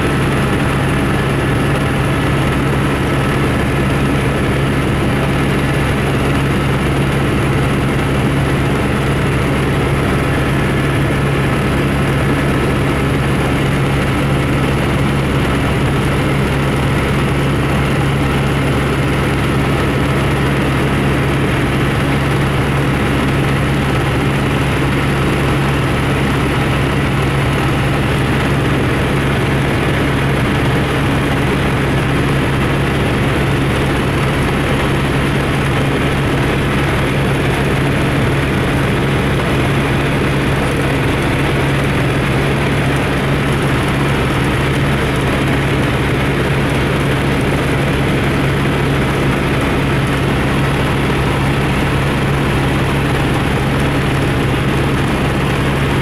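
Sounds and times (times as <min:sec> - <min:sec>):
small aircraft engine drone: 0:00.0 - 0:56.0.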